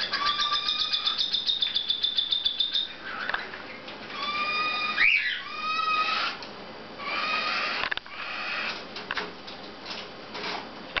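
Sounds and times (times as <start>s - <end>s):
cockatiels calling: 0.0s - 6.4s, 7.0s - 8.8s.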